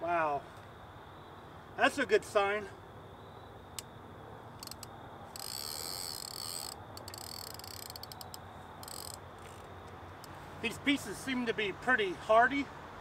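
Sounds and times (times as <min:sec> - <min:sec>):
fishing reel ratcheting whir: 0:04.6 - 0:09.7.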